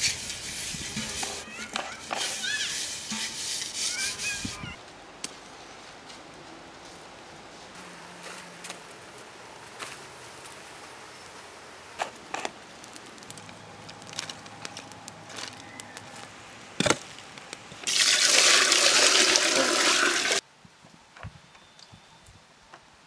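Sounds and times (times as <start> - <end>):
water pouring in heavy stream: 17.8 - 20.4.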